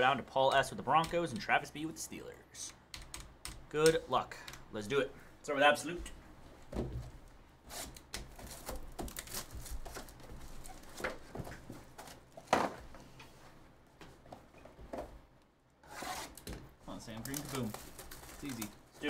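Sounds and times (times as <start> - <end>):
plastic wrap crinkling and tearing: 8.4 - 11.0, 16.9 - 19.0
box and card packs handled: 16.9 - 19.0.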